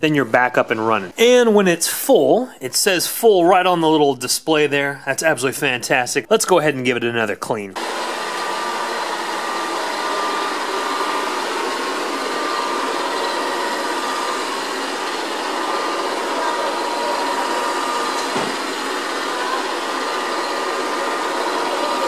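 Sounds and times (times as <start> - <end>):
robot vacuum whirring: 7.8 - 22.0.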